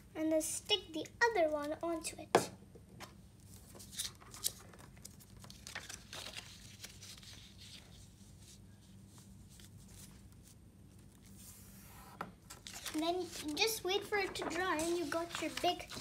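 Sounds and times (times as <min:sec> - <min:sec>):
paper rustling and scraping: 0:03.5 - 0:11.9, 0:12.5 - 0:16.0.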